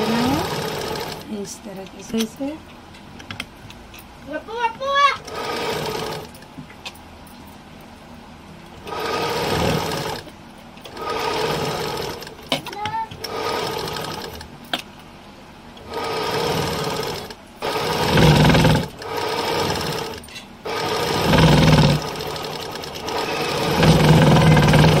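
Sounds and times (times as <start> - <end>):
sewing machine stitching: 0.0 - 1.3, 5.2 - 6.4, 8.8 - 10.3, 10.9 - 14.5, 15.8 - 25.0.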